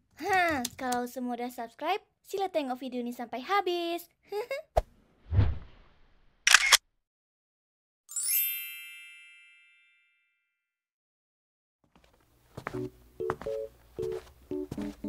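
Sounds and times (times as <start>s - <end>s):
bright sparkling chime: 8.1s - 10.4s.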